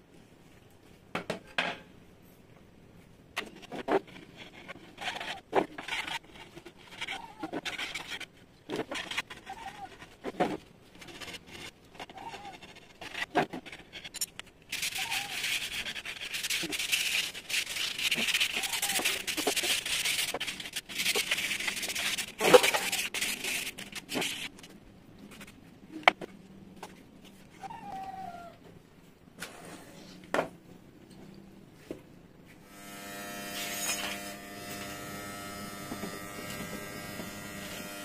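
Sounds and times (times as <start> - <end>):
sandpaper rasping on wood: 14.8 - 24.5.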